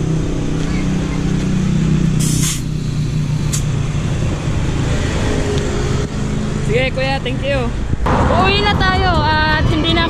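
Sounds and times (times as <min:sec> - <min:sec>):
vehicle engine running: 0:00.0 - 0:10.0
short burst of hiss: 0:02.2 - 0:02.7.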